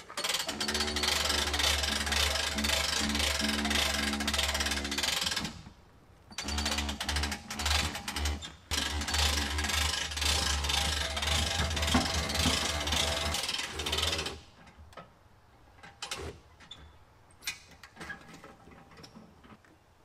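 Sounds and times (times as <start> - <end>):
hand winch ratcheting: 6.4 - 14.4.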